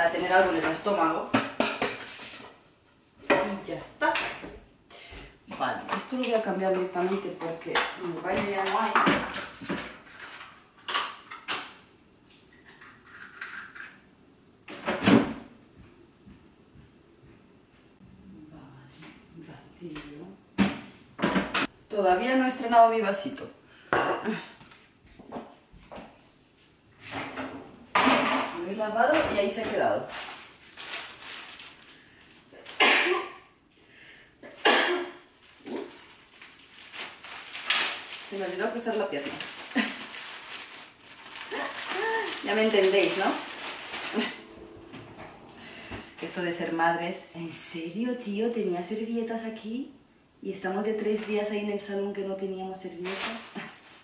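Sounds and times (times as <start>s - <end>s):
woman coughing or sneezing: 32.6s - 33.5s, 34.4s - 35.2s.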